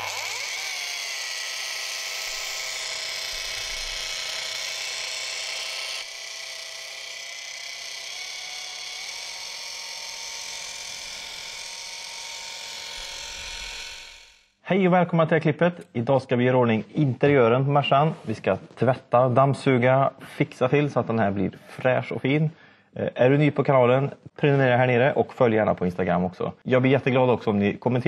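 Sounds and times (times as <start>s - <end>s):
high-speed electric motor whining: 0.0s - 14.5s.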